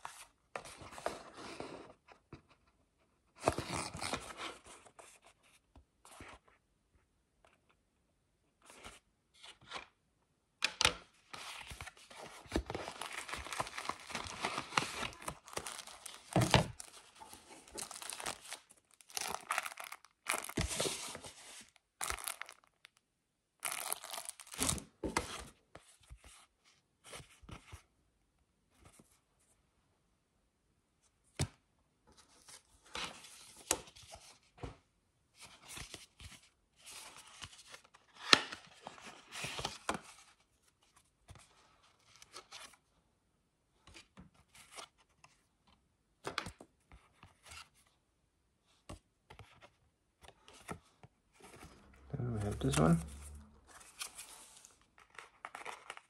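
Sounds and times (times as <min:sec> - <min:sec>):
paper and plastic wrapping rustling: 0:11.5 - 0:23.0, 0:23.6 - 0:24.9, 0:51.4 - 0:56.0.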